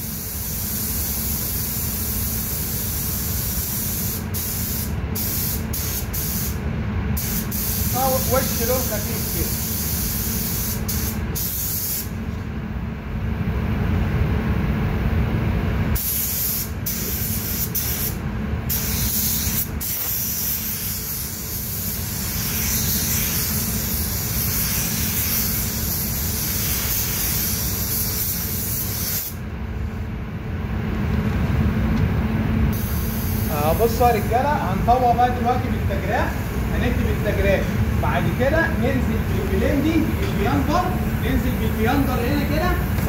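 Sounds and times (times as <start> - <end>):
paint spray gun hissing: 0.0 - 6.6, 7.2 - 12.1, 16.0 - 29.4, 32.8 - 34.2
steady low rumble: 29.4 - 43.0.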